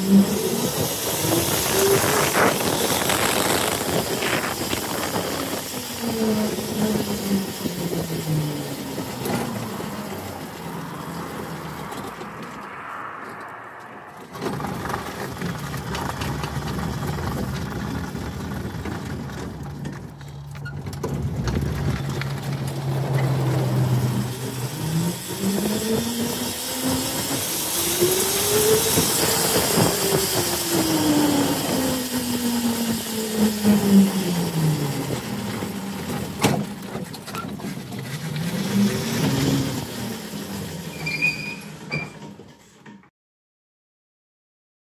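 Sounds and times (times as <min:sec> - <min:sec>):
electric motor whining: 0:00.0 - 0:12.4, 0:21.4 - 0:36.4
tyre and wind noise: 0:00.0 - 0:12.7, 0:13.8 - 0:42.4.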